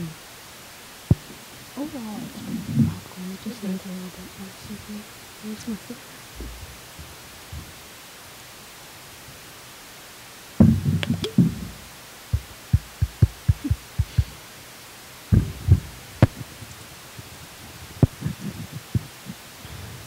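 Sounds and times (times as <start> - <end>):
sharp clicks: 10.6 - 11.7
mouth and handling noise: 10.6 - 14.5, 15.3 - 19.5
gulping: 18.0 - 19.4.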